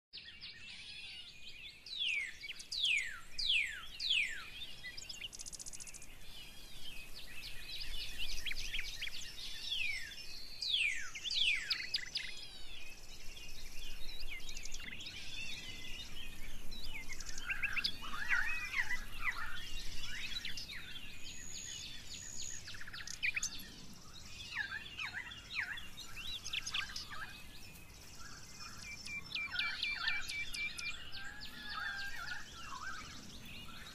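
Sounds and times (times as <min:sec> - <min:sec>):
songbirds singing: 0:00.1 - 0:33.9
bird trill: 0:13.9 - 0:33.9.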